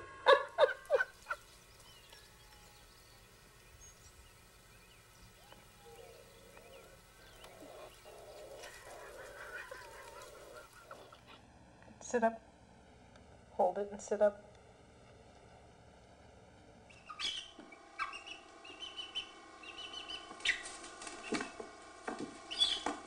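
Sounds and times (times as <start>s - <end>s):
animal whining cries: 5.5s - 11.4s
high animal chirps: 17.0s - 21.4s.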